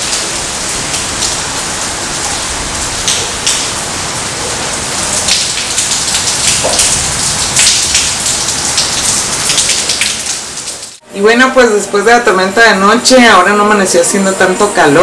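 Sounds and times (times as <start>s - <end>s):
heavy rain falling: 0.0s - 11.0s
raindrops ticking close by: 0.0s - 11.0s.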